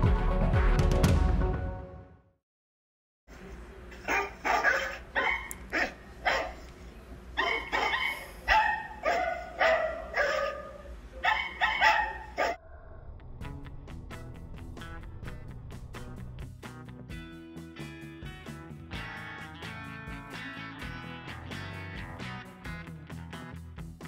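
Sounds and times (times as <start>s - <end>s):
small dog barking: 4.0s - 6.7s, 7.4s - 12.6s.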